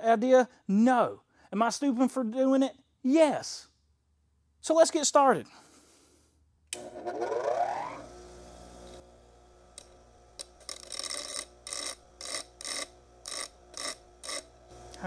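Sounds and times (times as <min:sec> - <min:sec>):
metal grinding on wheel: 0:06.8 - 0:08.1, 0:09.6 - 0:15.0
bench grinder motor humming: 0:06.8 - 0:15.0.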